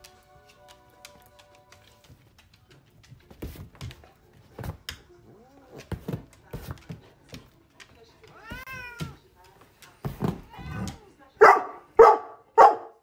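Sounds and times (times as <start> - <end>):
thumps on armchair: 10.0 - 10.9.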